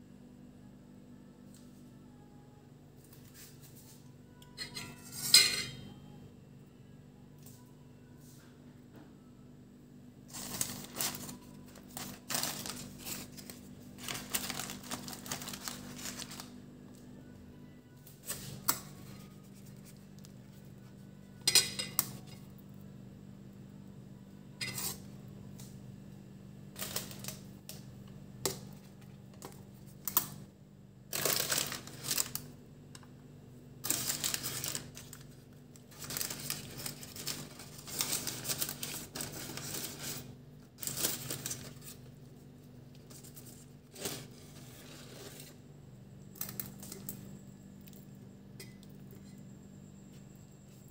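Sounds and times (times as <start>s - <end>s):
steady low hum: 0.0s - 50.9s
paper wrappers rustling: 10.3s - 16.9s, 18.1s - 21.0s, 26.8s - 27.5s, 31.1s - 32.5s, 33.8s - 45.6s.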